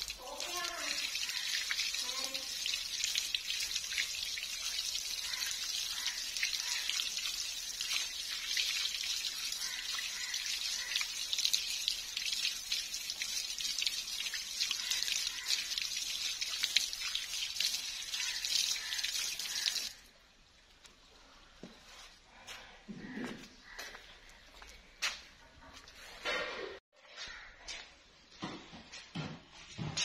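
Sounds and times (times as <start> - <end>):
water trickling and splashing: 0.0 - 20.1
water dripping: 0.0 - 21.0.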